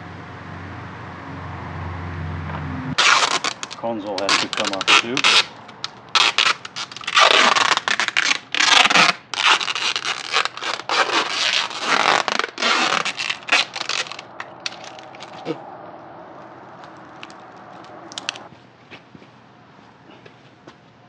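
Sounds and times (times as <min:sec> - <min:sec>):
scratchy rasping strokes: 0:06.2 - 0:15.6.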